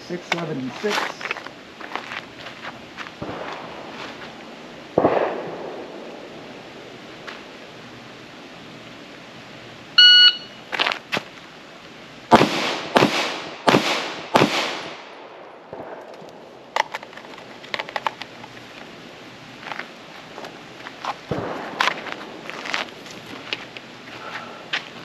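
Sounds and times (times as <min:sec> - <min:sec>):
pistol shots with echo: 0:05.0 - 0:06.0, 0:12.3 - 0:16.0
shot timer beep: 0:10.0 - 0:10.6.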